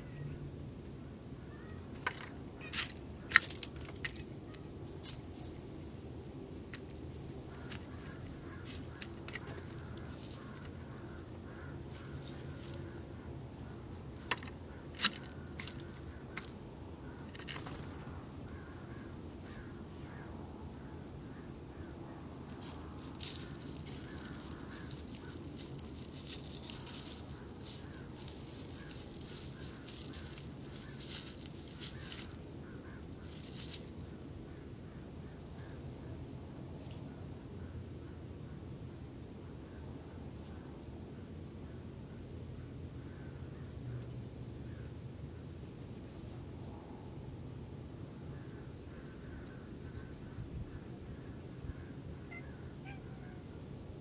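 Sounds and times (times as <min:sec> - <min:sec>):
bird pecking and cracking seed: 0:01.6 - 0:13.0, 0:13.7 - 0:19.6, 0:22.5 - 0:34.2
steady low rumble: 0:02.3 - 0:52.8.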